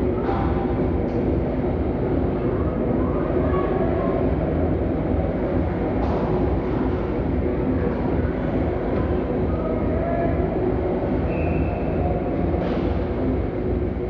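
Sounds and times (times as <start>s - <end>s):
ice arena low rumble: 0.0s - 14.0s
distant shouts: 9.1s - 12.5s.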